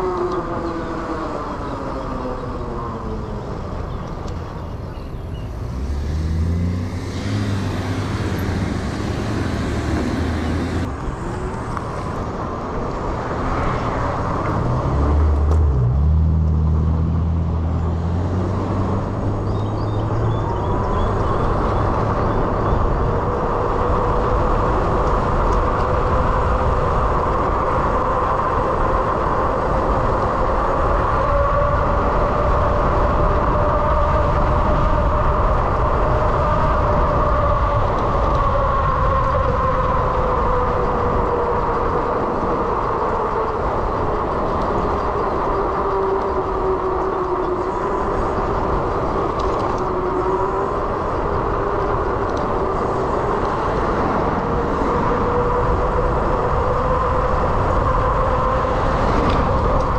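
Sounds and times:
rising whine: 0.0 - 59.9
vehicle engines running: 0.0 - 59.9
steady rushing noise: 20.6 - 59.9.

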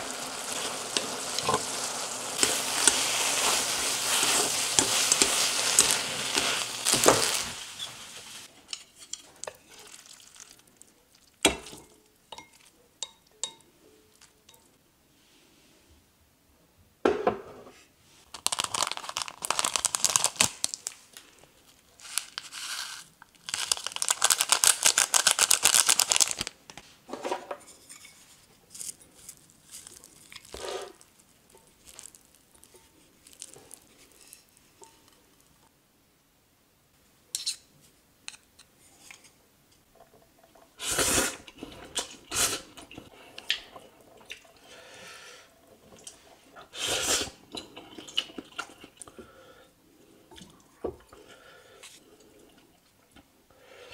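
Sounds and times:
packet crinkling: 0.0 - 8.5, 9.4 - 11.4, 18.3 - 26.6, 28.7 - 34.4.

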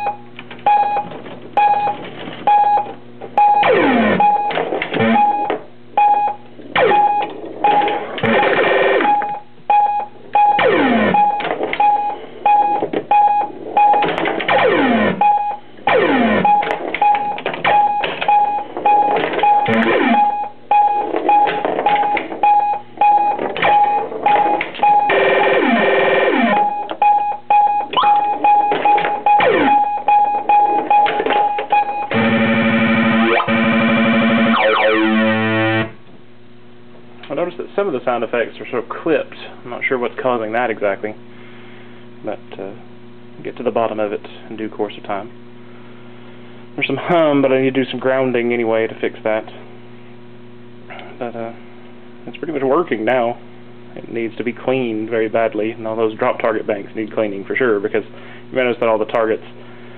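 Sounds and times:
pulsing beep: 0.0 - 35.9
steady low hum: 0.0 - 59.9
short electronic tune: 6.8 - 9.2, 19.4 - 20.4, 31.8 - 36.0
falling pitch sweeps: 33.0 - 36.0.

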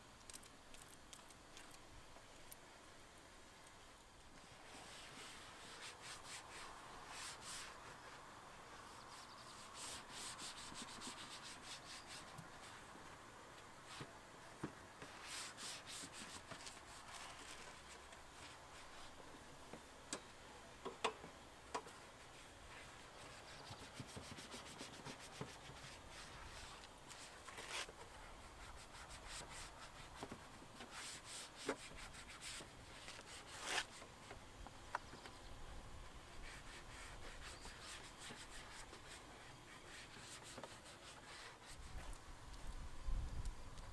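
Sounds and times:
sponge rubbing on plastic: 9.1 - 12.8, 22.8 - 27.9, 36.4 - 42.2.

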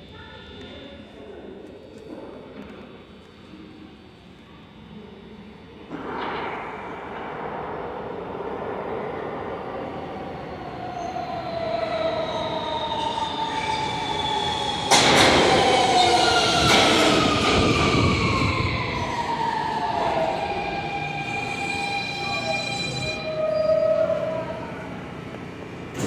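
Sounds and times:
subway train braking whine: 0.0 - 26.0
train wheels rumbling on rail: 5.9 - 23.3.

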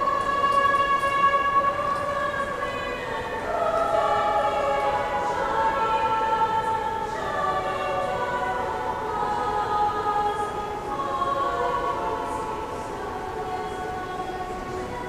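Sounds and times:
choir singing long notes: 0.0 - 15.0.

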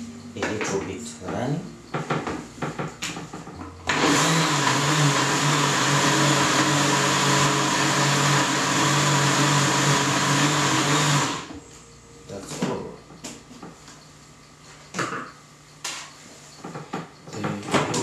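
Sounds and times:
electric blender running: 3.8 - 11.6.

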